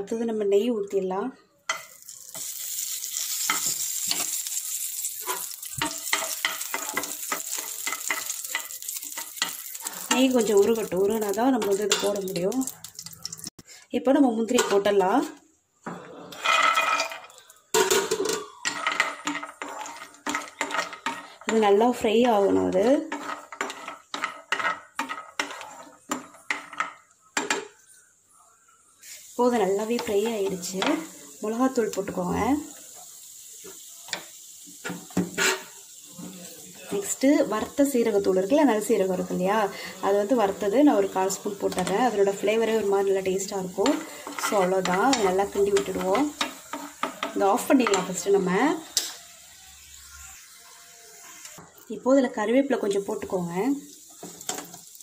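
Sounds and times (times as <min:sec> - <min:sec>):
ghee sizzling: 0:01.6 - 0:13.8, 0:16.3 - 0:55.0
metal spoon scraping a pan: 0:01.7 - 0:13.2, 0:16.3 - 0:28.0, 0:34.8 - 0:35.8, 0:39.2 - 0:51.6.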